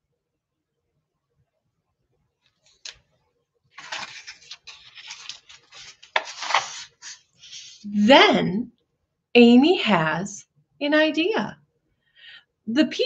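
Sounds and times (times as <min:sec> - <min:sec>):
paper page rustling: 0:03.8 - 0:07.9.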